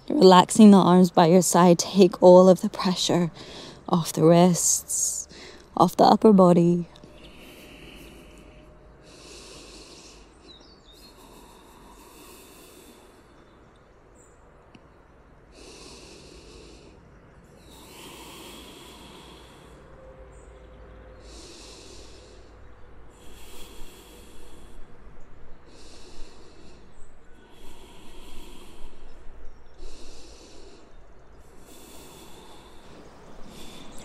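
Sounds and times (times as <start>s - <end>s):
woman breathing deeply: 3.3s - 3.9s, 5.2s - 5.8s, 7.0s - 13.6s, 15.4s - 34.0s.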